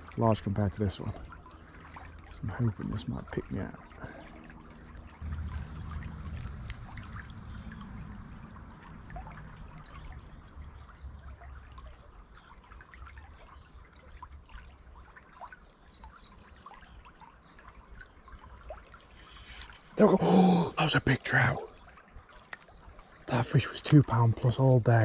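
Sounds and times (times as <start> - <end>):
stream water babbling: 0.0 - 25.0
low rumble: 4.3 - 11.4.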